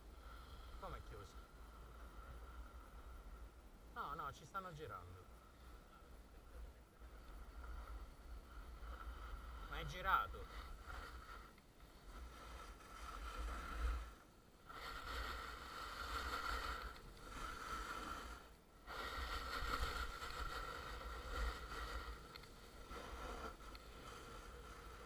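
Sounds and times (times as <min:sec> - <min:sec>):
snowboard scraping on packed snow: 0:07.4 - 0:25.0.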